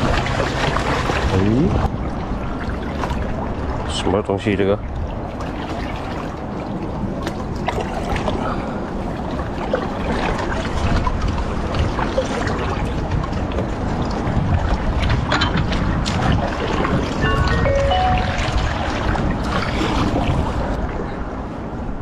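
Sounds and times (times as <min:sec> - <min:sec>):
water lapping around a boat: 0:00.0 - 0:22.0
wind on microphone: 0:09.1 - 0:22.0.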